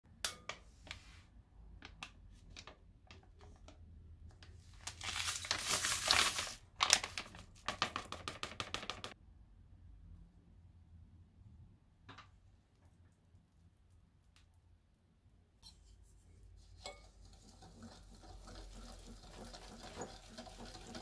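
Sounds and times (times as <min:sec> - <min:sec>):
plastic packet crinkling: 0:04.8 - 0:08.1
packet rasping: 0:04.9 - 0:09.0.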